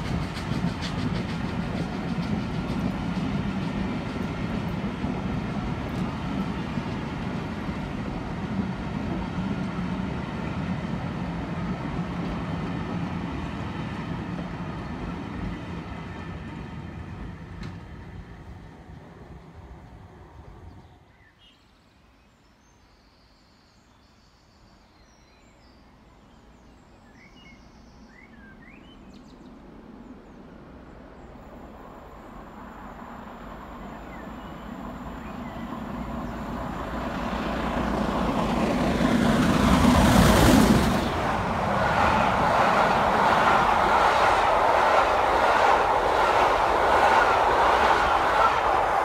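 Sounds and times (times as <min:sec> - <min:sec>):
steam locomotive passing: 0:00.0 - 0:21.0, 0:28.0 - 0:49.0
train coaches rumbling past: 0:00.0 - 0:21.1, 0:28.1 - 0:49.0.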